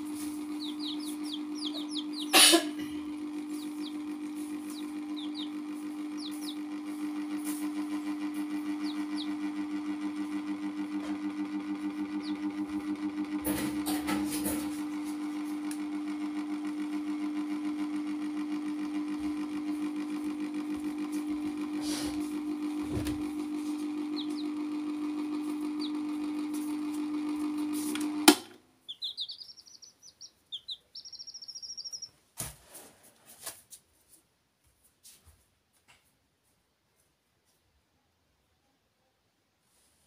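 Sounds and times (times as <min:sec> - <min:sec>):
steady hum: 0:00.0 - 0:32.1
chick peeping: 0:00.1 - 0:07.6, 0:08.3 - 0:10.3, 0:23.6 - 0:24.6, 0:25.5 - 0:26.7, 0:28.8 - 0:32.2.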